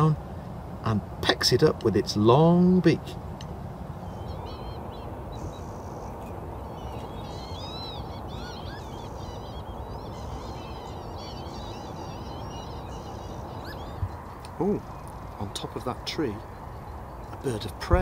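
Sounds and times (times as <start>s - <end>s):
low rushing background: 0.0s - 18.0s
lapwings calling: 3.9s - 18.0s.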